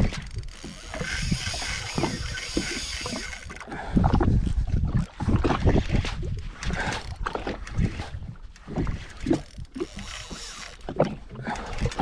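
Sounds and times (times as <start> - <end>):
fishing reel clicking and whirring: 0.0 - 3.7, 6.6 - 12.0
wind buffeting microphone: 0.0 - 10.2
water slapping: 0.0 - 12.0.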